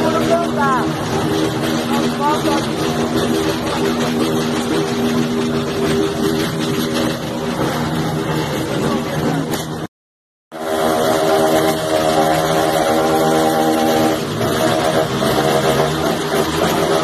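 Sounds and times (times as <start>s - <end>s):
crowd voices: 0.0s - 9.9s
motorcycle engines droning: 0.0s - 9.9s, 10.6s - 17.0s.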